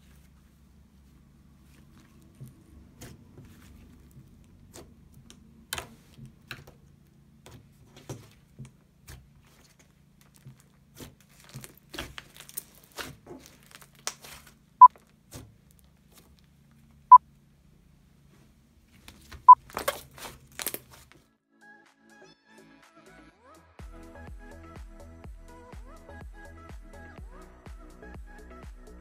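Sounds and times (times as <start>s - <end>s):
slime crackling and popping: 10.0s - 16.5s, 19.7s - 21.0s.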